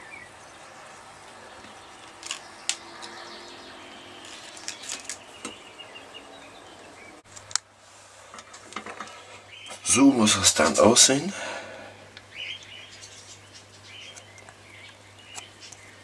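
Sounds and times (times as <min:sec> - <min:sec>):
faint steady hiss: 0:03.8 - 0:16.0.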